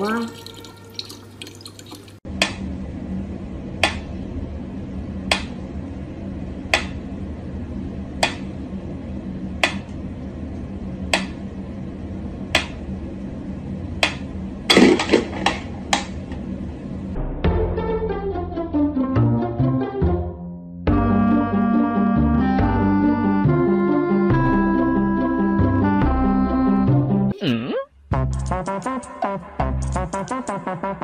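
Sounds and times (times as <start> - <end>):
low hum: 2.3 - 18.7.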